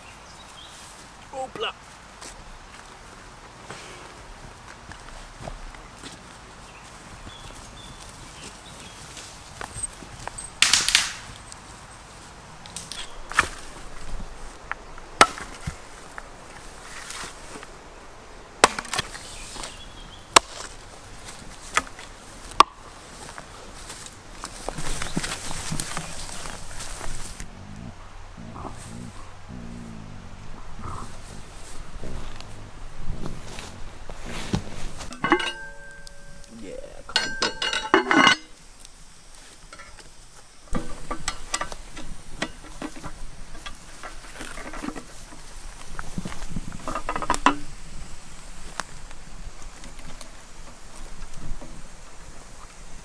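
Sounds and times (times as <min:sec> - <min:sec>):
campfire crackling and popping: 0:02.2 - 0:27.8, 0:30.6 - 0:53.0
hatchet chopping branch: 0:10.6 - 0:11.4, 0:15.2 - 0:15.8, 0:18.6 - 0:19.2, 0:20.3 - 0:20.8.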